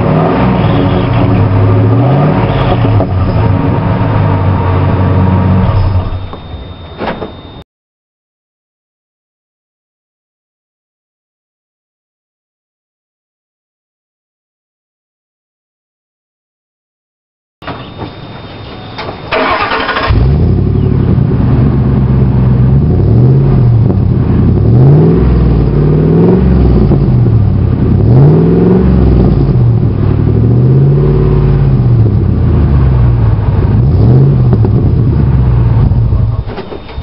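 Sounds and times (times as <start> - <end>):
engine revving: 0.0 - 6.4, 19.3 - 37.0
engine cranking and starting: 19.0 - 20.6.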